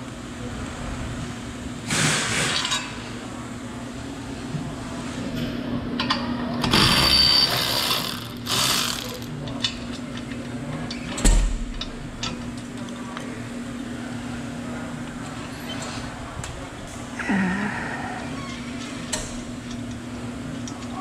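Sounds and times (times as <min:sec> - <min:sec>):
steady hum: 0:06.5 - 0:09.8
electric ratchet whirring: 0:06.6 - 0:09.3.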